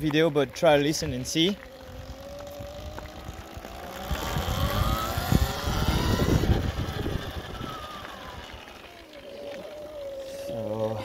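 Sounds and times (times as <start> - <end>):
electric motor whining: 0.0 - 11.0
low rumble: 0.9 - 10.6.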